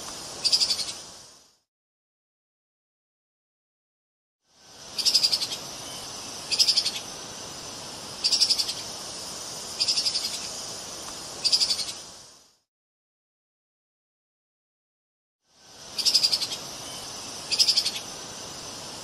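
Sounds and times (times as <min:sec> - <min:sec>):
background hiss: 0:00.0 - 0:01.7, 0:04.4 - 0:12.7, 0:15.4 - 0:19.0.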